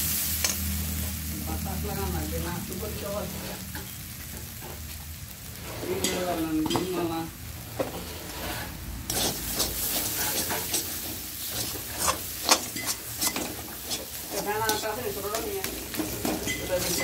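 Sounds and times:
food sizzling in oil: 0:00.0 - 0:17.0
metal spatula scraping a pan: 0:03.0 - 0:04.9, 0:05.5 - 0:17.0.

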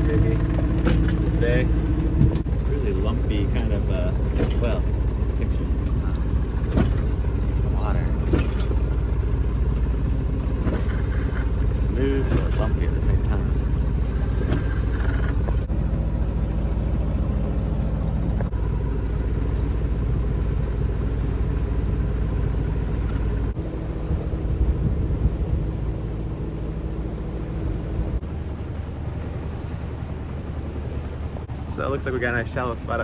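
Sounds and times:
boat engine droning: 0:00.0 - 0:33.0.

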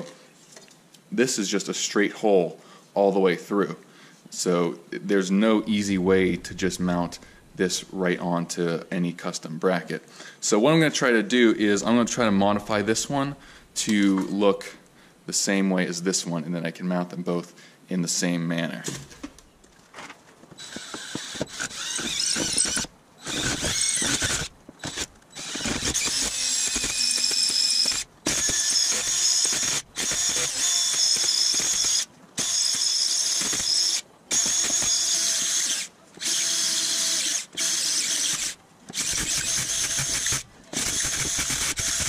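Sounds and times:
drill cutting metal whining: 0:20.6 - 0:42.0.

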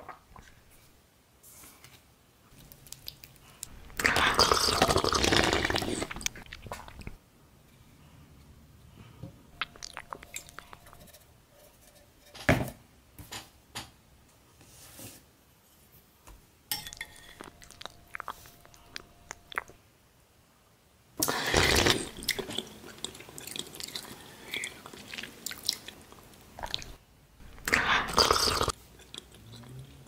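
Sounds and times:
wet squelchy food sounds: 0:02.5 - 0:07.2, 0:09.6 - 0:10.9, 0:17.3 - 0:19.8, 0:21.3 - 0:30.0
spoon clinking on ceramic plate: 0:16.7 - 0:17.5.

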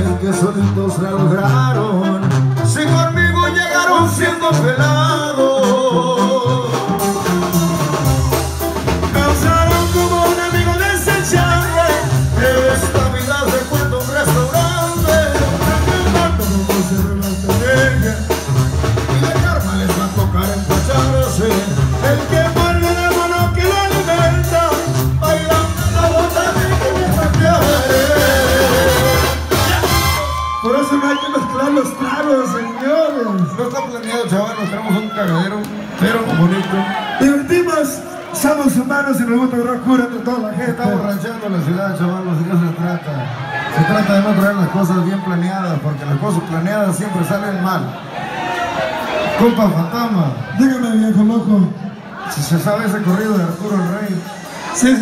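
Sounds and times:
trombones and horns: 0:00.0 - 0:30.6
tubas playing bass line: 0:00.0 - 0:30.6
drums: 0:00.0 - 0:33.8, 0:52.5 - 0:55.0.

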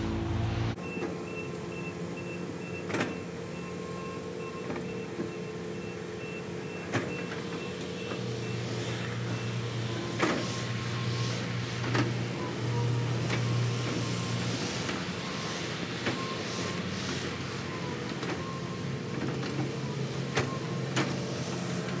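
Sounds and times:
car passing: 0:00.0 - 0:00.8
diesel construction machinery running: 0:00.0 - 0:22.0.

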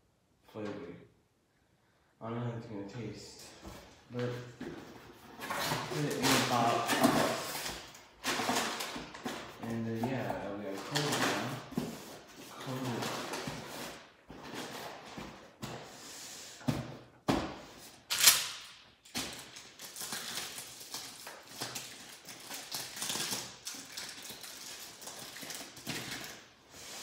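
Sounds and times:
cardboard and plastic rustling: 0:03.5 - 0:15.9, 0:19.1 - 0:26.7.

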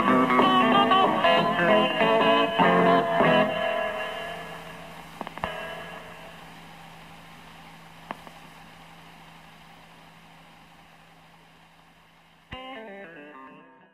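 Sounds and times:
electric guitar notes ringing: 0:00.0 - 0:06.4, 0:12.5 - 0:13.9
steady low tone: 0:00.0 - 0:12.6.

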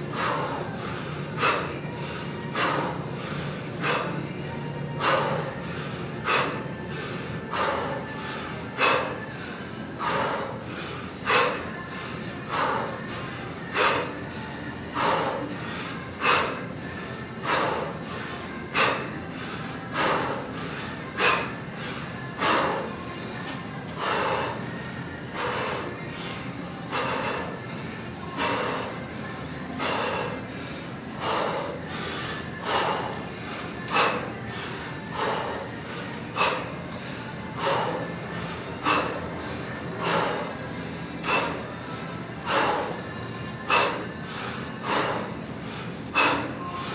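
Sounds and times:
man breathing forcefully: 0:00.0 - 0:46.9.

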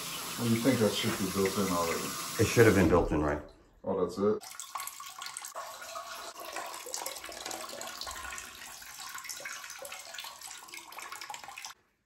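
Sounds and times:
toilet flushing water rush: 0:00.0 - 0:03.1.

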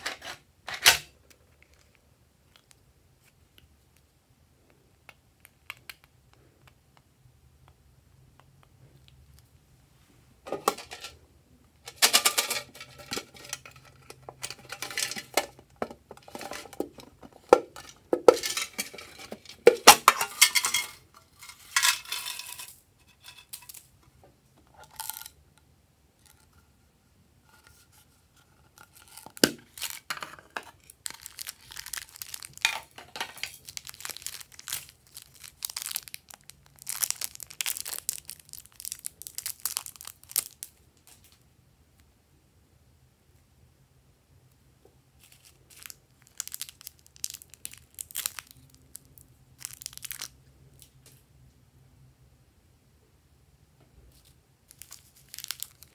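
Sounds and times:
plastic scraping: 0:11.9 - 0:22.3
packaging crinkling and tearing: 0:28.8 - 0:41.3, 0:45.2 - 0:50.4, 0:54.2 - 0:55.9.

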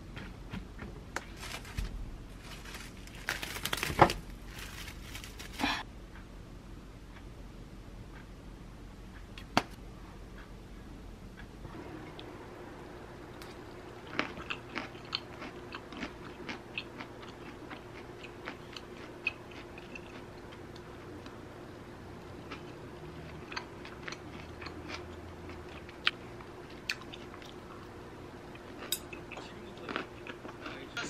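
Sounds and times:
faint steady hum: 0:00.0 - 0:31.0
chewing and crunching: 0:00.1 - 0:05.8, 0:13.4 - 0:21.5, 0:22.2 - 0:31.0.

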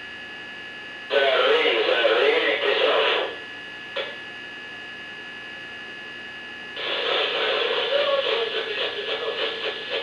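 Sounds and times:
voice over a radio: 0:01.1 - 0:03.4, 0:06.8 - 0:10.0.

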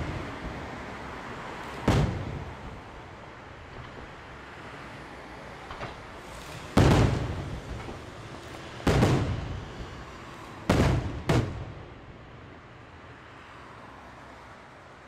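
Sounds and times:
firework shells bursting: 0:01.6 - 0:02.8.

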